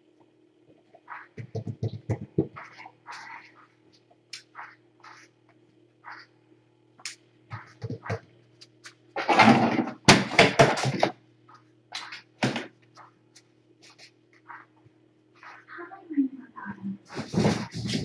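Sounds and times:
faint low hum: 0.0 - 18.0
rustling and clattering: 8.8 - 11.2, 17.1 - 18.0
scrapes and light knocks: 17.1 - 18.0.

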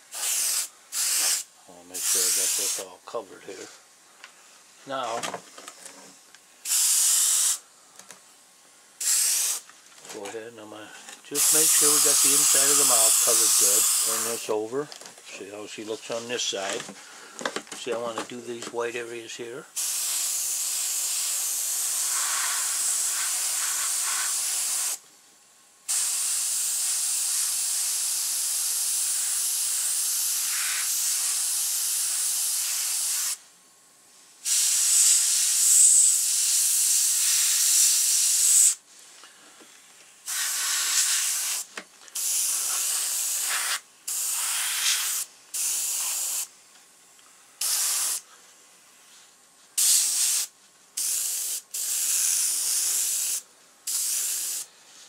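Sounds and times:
airbrush spraying hiss: 0.0 - 2.9, 6.6 - 7.6, 9.0 - 9.7, 11.3 - 14.6, 19.8 - 25.0, 25.9 - 33.4, 34.4 - 38.8, 40.2 - 46.5, 47.6 - 48.3, 49.8 - 54.7.

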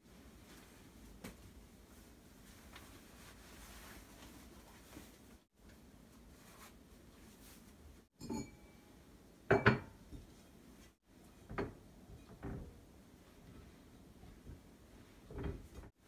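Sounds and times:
dishes clinking and knocking: 8.2 - 8.8, 9.5 - 10.4, 11.3 - 12.8.

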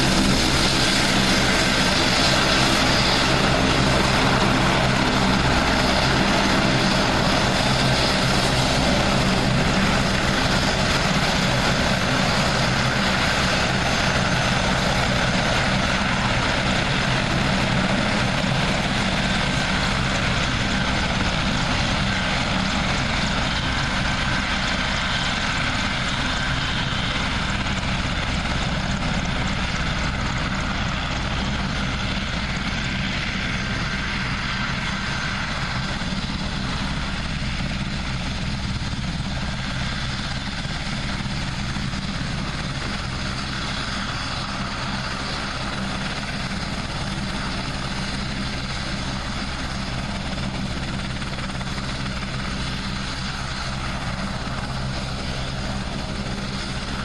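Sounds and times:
helicopter engines and rotor: 0.0 - 57.0.

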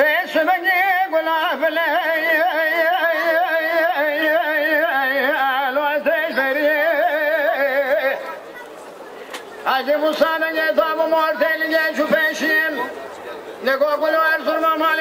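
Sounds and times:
person singing with vibrato: 0.0 - 8.4.

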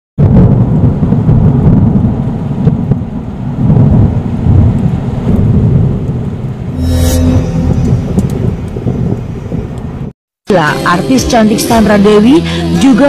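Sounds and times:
rolling thunder: 0.2 - 6.7, 7.6 - 10.1
rain: 0.3 - 6.7.

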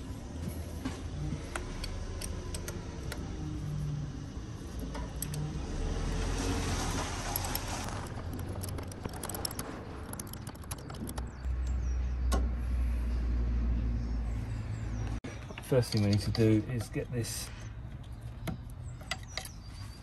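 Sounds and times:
rustling: 6.4 - 11.1
metal spanner clinking on metal: 15.6 - 17.0.

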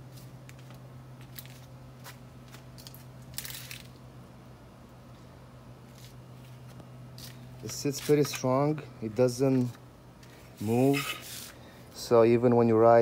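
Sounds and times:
steady low hum: 0.0 - 13.0
scuffing rustle: 5.9 - 8.5.

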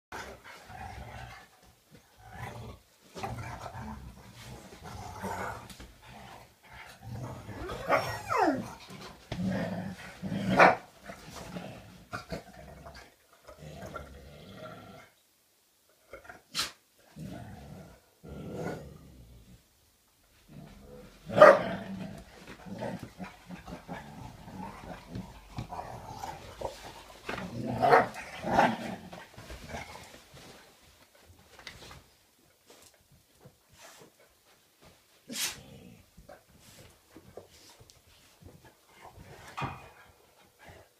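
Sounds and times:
dogs play-growling: 0.1 - 15.2, 17.1 - 19.6, 20.3 - 32.0, 32.7 - 40.9
dog whine: 7.5 - 8.7
dog barking: 21.4 - 21.6.

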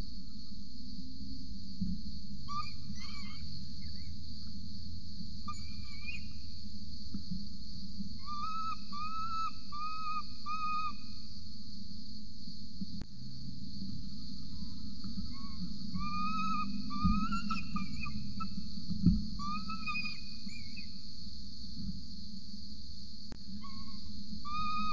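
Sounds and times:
young falcon begging calls: 8.2 - 10.9, 15.3 - 18.2, 19.4 - 20.9, 23.6 - 24.9.

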